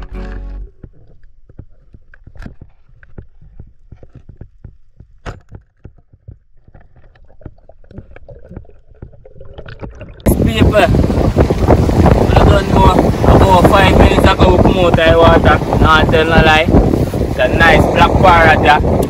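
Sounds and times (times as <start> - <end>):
sharp underwater clicks and knocks: 0.2 - 10.3
underwater low rumble: 0.6 - 15.8.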